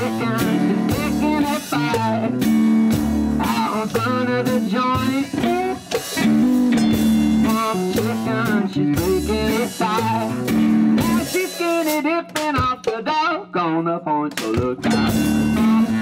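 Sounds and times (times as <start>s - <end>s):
electric guitar riff: 0.0s - 12.8s, 14.6s - 16.0s
low drum thumps: 14.6s - 16.0s.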